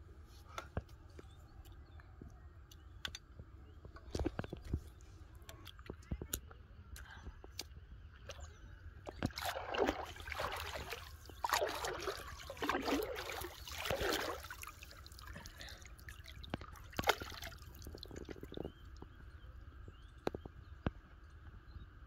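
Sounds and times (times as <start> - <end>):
water sloshing and splashing: 8.1 - 19.0.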